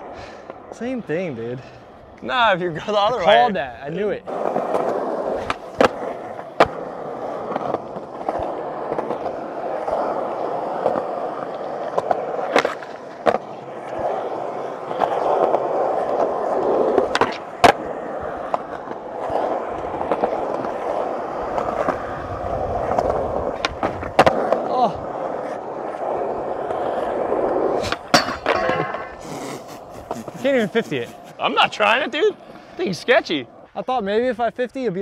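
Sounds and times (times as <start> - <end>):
skateboard wheels rolling on asphalt: 0.0 - 35.0
skateboard clacking on ground: 4.2 - 30.6.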